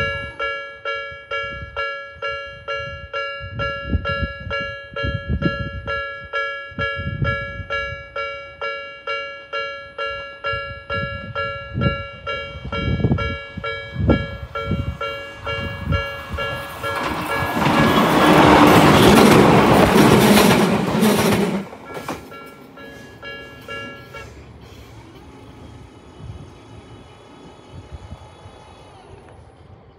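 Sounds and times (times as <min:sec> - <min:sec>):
level crossing warning bell dinging: 0:00.0 - 0:20.4, 0:21.0 - 0:24.4
electric train passing: 0:00.0 - 0:29.9.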